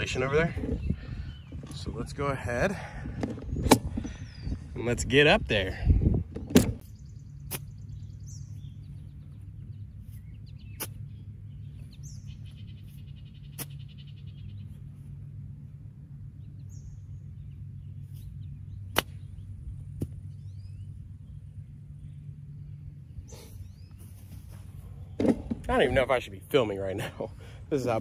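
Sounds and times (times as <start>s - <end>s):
low outdoor hum: 0.0s - 28.0s
golf club striking ball: 18.9s - 20.3s.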